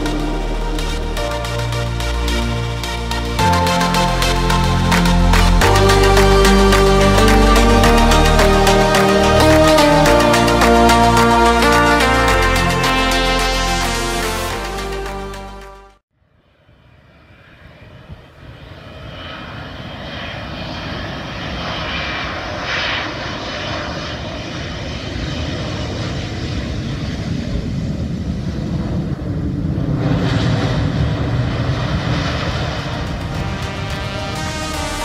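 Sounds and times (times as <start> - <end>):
jet engine noise: 16.9 - 35.0.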